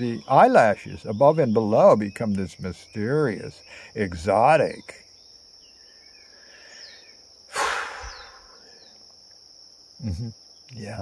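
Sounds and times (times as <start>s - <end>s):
high-pitched insect drone: 0.0s - 11.0s
breathy rush of noise: 6.3s - 8.8s.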